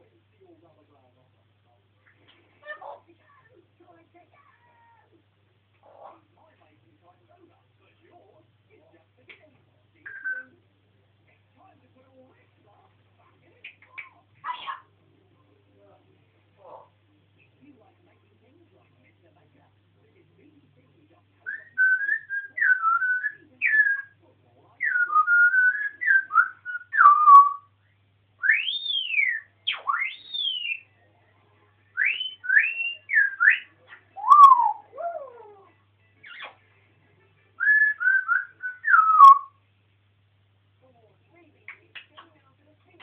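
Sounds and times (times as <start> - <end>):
parrot whistling: 10.1 - 10.5, 21.4 - 24.2, 24.8 - 27.7, 28.4 - 30.9, 32.0 - 35.6, 37.6 - 39.6.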